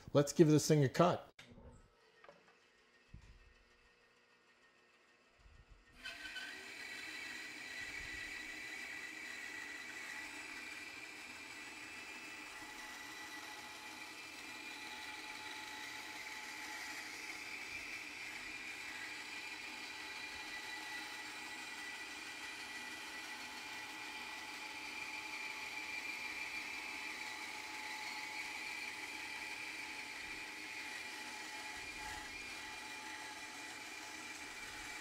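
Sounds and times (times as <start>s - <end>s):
bandsaw motor whine: 2.2s - 35.0s
bandsaw cutting a board: 5.9s - 35.0s.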